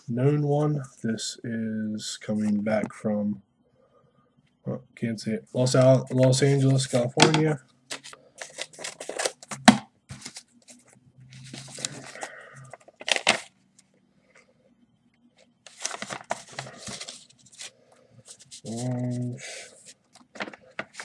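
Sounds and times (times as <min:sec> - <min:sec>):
paper rustling and tearing: 0:10.1 - 0:13.5, 0:15.7 - 0:21.0.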